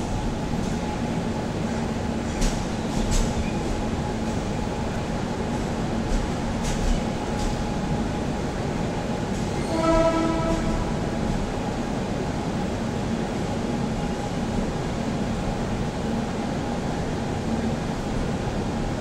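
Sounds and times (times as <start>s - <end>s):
train coach rumbling: 0.0s - 19.0s
train horn: 9.6s - 11.1s.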